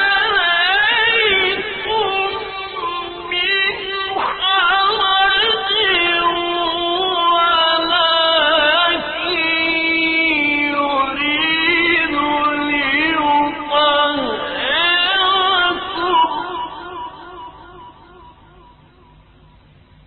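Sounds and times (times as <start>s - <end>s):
man chanting: 0.0s - 18.0s.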